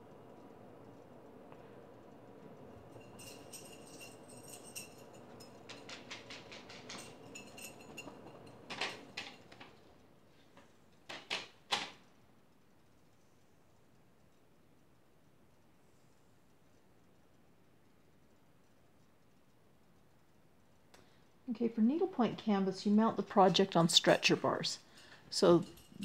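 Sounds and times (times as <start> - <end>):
small clicks and rustles: 0.4 - 21.4.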